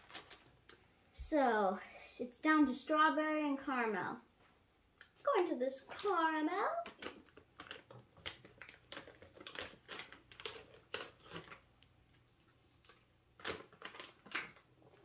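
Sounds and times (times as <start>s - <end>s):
plastic pouch crinkling: 0.0s - 0.8s, 6.8s - 15.0s.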